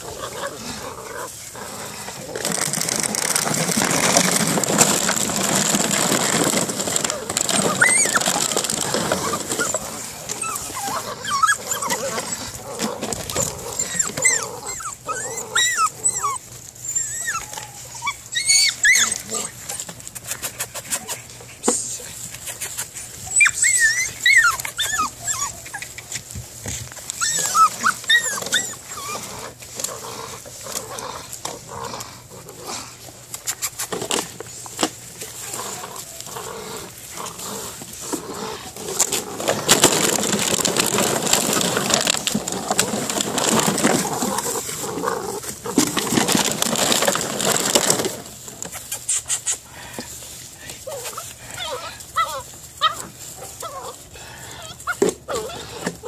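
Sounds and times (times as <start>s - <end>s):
puppy whining: 0.0s - 21.4s, 22.5s - 32.3s, 50.8s - 56.0s
rustling: 0.0s - 56.0s.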